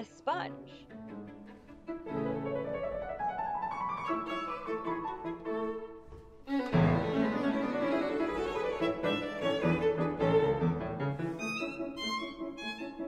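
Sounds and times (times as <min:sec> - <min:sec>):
bowed violin melody: 0:00.0 - 0:13.0
piano: 0:00.0 - 0:13.0.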